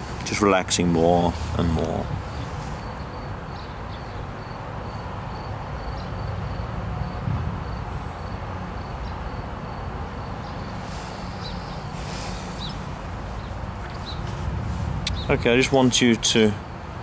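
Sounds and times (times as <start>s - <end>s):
wind rumble on microphone: 1.3s - 4.0s, 6.2s - 9.2s, 10.6s - 17.0s
clothing rustle: 10.8s - 15.1s.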